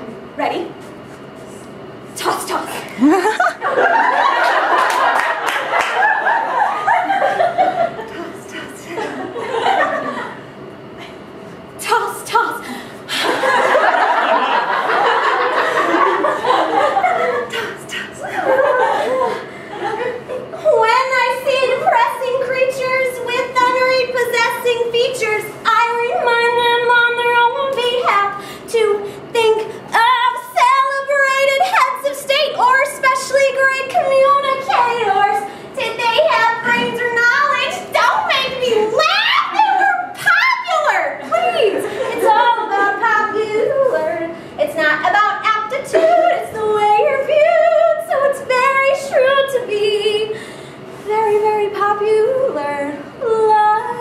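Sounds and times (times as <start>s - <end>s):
woman singing unaccompanied: 20.8s - 50.4s, 51.1s - 54.0s.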